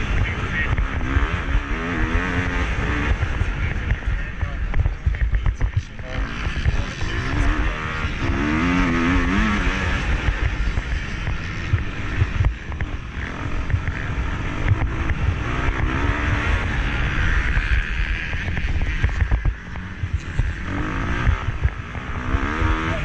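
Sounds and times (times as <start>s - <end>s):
heavy low rumble: 0.0s - 23.0s
motorcycle engine revving: 0.0s - 23.0s.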